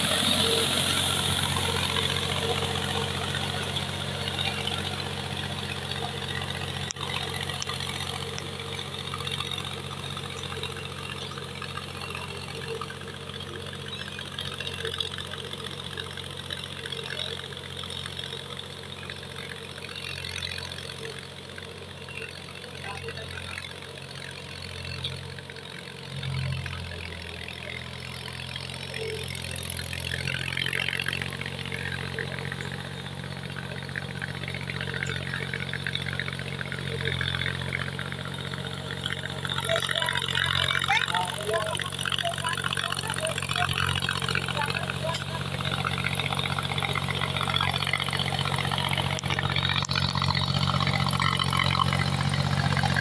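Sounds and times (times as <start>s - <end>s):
tractor diesel engine running: 0.0s - 53.0s.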